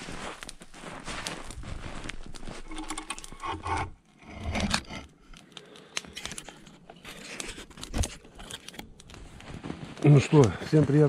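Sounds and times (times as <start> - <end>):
objects rubbing and scraping: 2.3 - 5.4.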